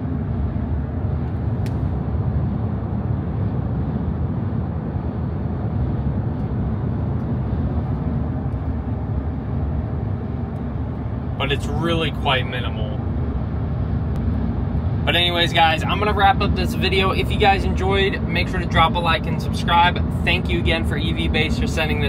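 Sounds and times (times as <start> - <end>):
road and wind noise in car: 0.0 - 22.0.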